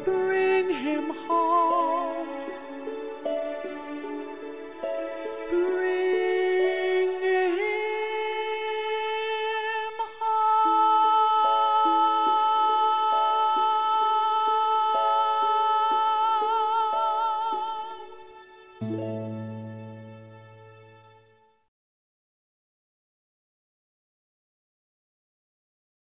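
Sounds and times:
man singing a sustained note: 0:05.5 - 0:18.2.

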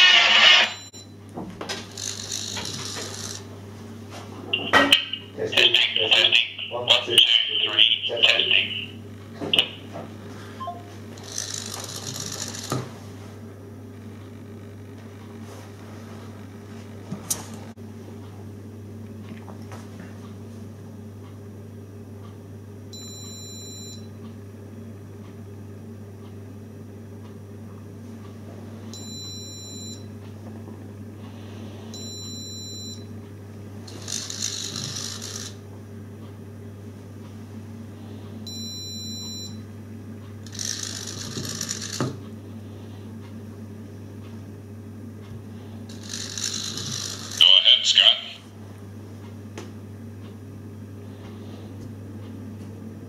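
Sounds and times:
low electrical hum: 0:00.0 - 0:53.0
motorised lid mechanical noise: 0:11.2 - 0:12.9.

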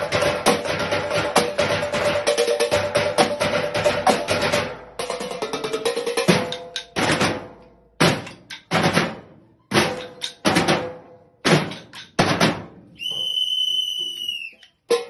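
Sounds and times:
high steady whistle tone: 0:13.0 - 0:14.8.

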